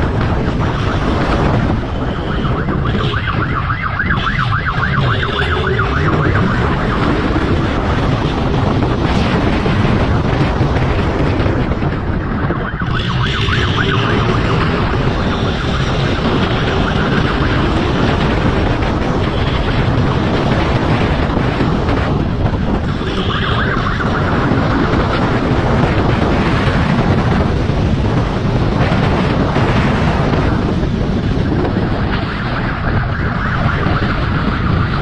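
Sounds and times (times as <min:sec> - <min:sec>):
wind rushing over microphone: 0:00.0 - 0:35.0
siren warbling: 0:00.6 - 0:09.1, 0:12.0 - 0:21.2, 0:22.8 - 0:25.2, 0:32.7 - 0:35.0.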